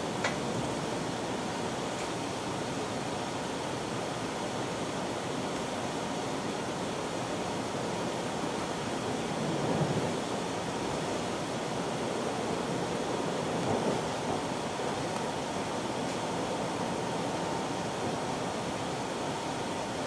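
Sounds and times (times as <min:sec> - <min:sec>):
train wheels rolling on rails: 0:08.4 - 0:20.0.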